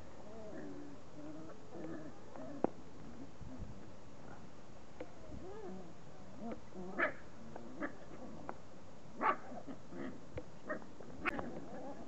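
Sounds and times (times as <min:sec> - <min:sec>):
puppies grumbling: 0:00.2 - 0:03.4, 0:09.2 - 0:12.0.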